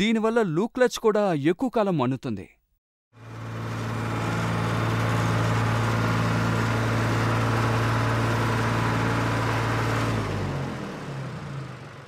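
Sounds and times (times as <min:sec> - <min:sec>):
tractor diesel engine droning: 0:03.2 - 0:12.0.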